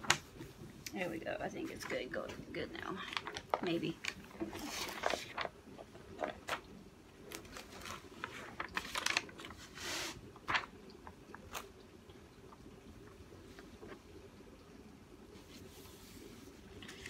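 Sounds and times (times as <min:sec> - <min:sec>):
paper sheets rustling and crinkling: 0:02.8 - 0:06.6, 0:07.3 - 0:11.6.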